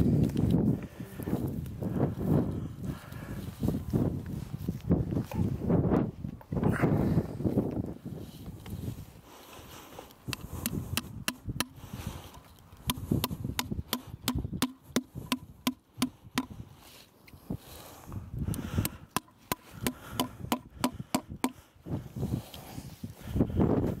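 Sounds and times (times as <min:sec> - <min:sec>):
hammer driving nails into wood: 0:12.8 - 0:16.6.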